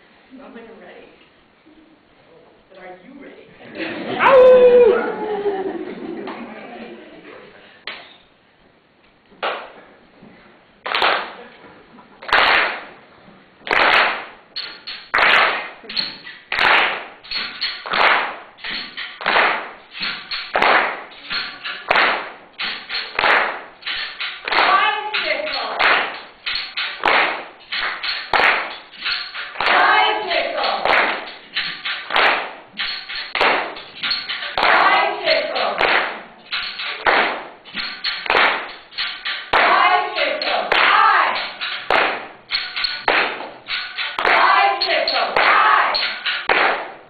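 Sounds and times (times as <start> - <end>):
rhythmic group clapping: 3.6 - 7.0, 7.8 - 8.2, 9.4 - 9.8, 10.8 - 47.0
people shouting: 4.1 - 5.6, 39.6 - 41.5, 44.3 - 46.1
sharp cracks in a reverberant hall: 9.0 - 9.9, 10.8 - 11.5, 12.2 - 29.8, 30.4 - 34.9, 35.6 - 47.0.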